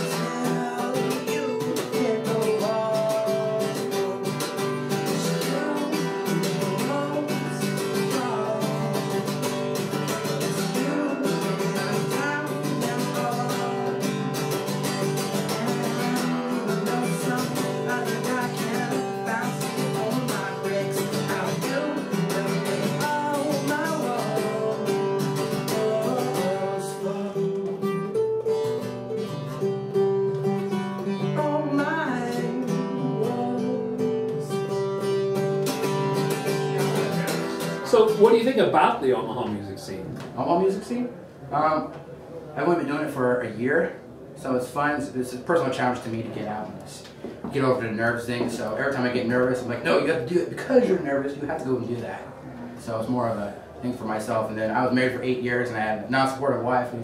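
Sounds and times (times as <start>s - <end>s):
man singing: 0.0s - 28.2s, 30.4s - 37.8s
acoustic guitar strumming: 0.0s - 39.7s.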